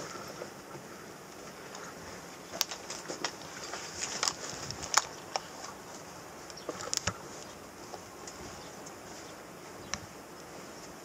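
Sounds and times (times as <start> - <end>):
footsteps: 0.0 - 11.0.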